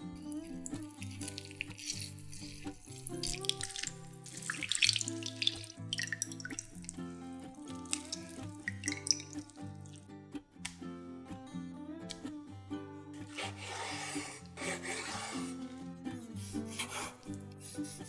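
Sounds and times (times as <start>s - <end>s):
soft background music: 0.0s - 18.0s
juice splashing into a glass bowl: 0.2s - 10.0s
wet squelching fruit: 0.2s - 10.0s.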